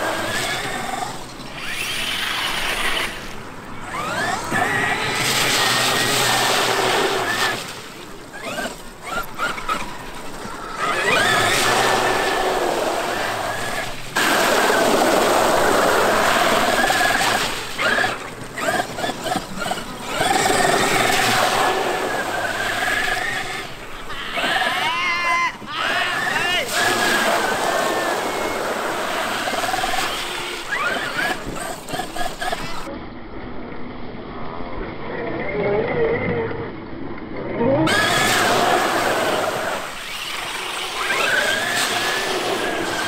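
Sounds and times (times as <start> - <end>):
water splashing: 0.0 - 24.7, 26.6 - 32.9, 37.9 - 43.0
electric motor whine: 0.0 - 24.8, 37.8 - 43.0.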